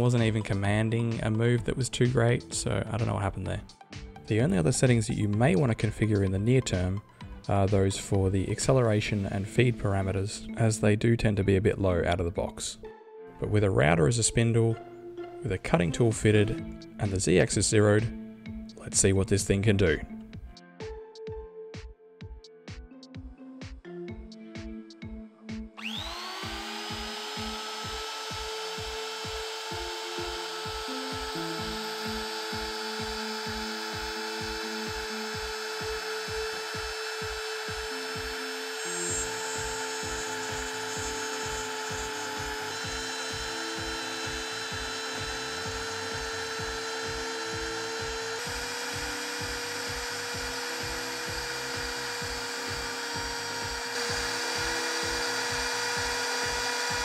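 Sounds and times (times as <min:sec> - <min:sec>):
music with steady beat: 0:00.0 - 0:09.8, 0:14.8 - 0:19.0, 0:19.8 - 0:57.0
router bit milling plywood: 0:25.8 - 0:57.0
router motor whining: 0:25.8 - 0:57.0.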